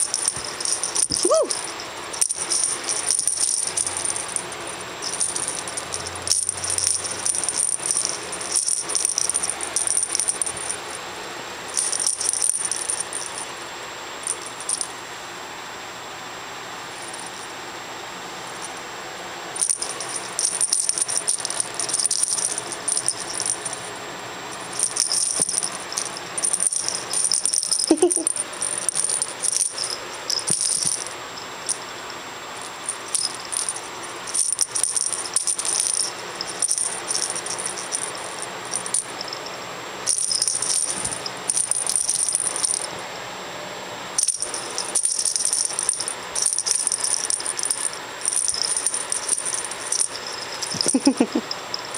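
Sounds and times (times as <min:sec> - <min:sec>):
cat toy rattling: 0:00.0 - 0:10.9, 0:11.7 - 0:13.4, 0:19.6 - 0:23.9, 0:24.6 - 0:31.8, 0:32.7 - 0:39.5, 0:40.1 - 0:42.9, 0:44.2 - 0:51.9.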